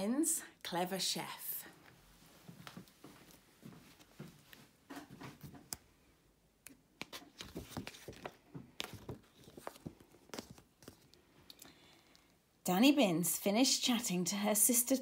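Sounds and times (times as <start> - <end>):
book pages turning: 6.7 - 11.5
paper rustling: 7.0 - 11.3.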